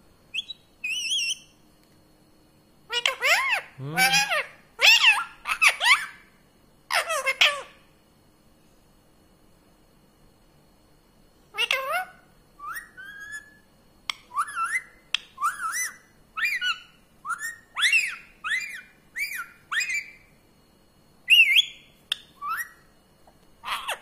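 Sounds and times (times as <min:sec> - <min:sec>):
parrot whistled calls: 0:00.3 - 0:01.6, 0:02.9 - 0:06.2, 0:11.6 - 0:13.6, 0:14.2 - 0:20.3, 0:21.3 - 0:22.9.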